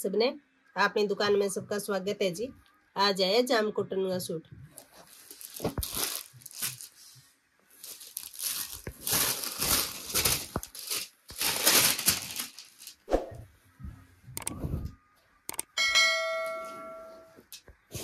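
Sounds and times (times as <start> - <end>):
fabric rustling: 4.6 - 13.4
plastic packet crinkling: 4.8 - 7.0, 7.7 - 13.1.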